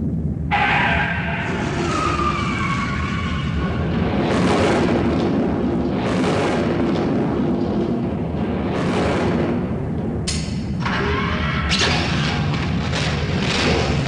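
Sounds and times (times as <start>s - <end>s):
rushing blasts: 0.5s - 10.2s.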